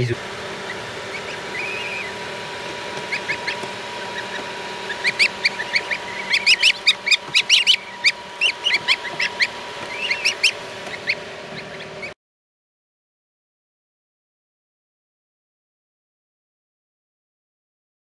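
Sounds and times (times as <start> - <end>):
goslings peeping: 0.0 - 12.2
steady hum: 0.0 - 12.2.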